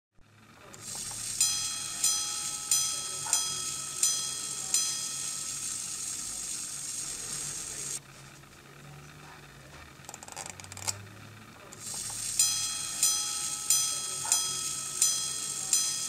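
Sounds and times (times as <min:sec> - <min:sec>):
steady high hiss: 0:00.7 - 0:08.0, 0:11.7 - 0:16.0
pocket watch chimes: 0:00.8 - 0:08.0, 0:11.8 - 0:16.0.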